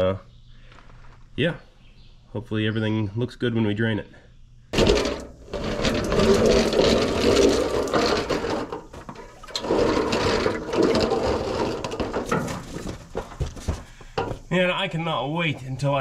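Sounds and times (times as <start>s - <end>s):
metal pan scraping on gravel: 4.8s - 13.4s.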